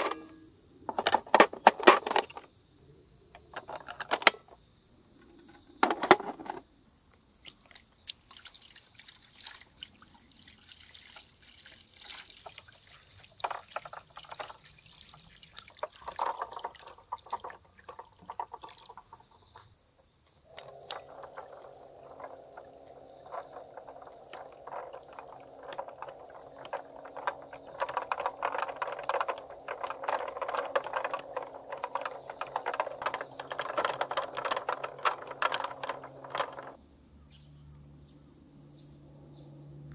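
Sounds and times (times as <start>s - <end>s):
water pouring and splashing: 7.4s - 19.2s.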